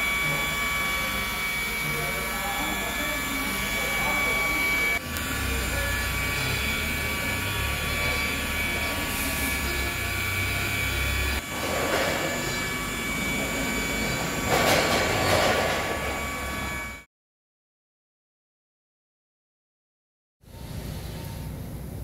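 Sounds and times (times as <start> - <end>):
polishing pad rushing: 0.0 - 17.0
electric polisher whining: 0.0 - 17.1.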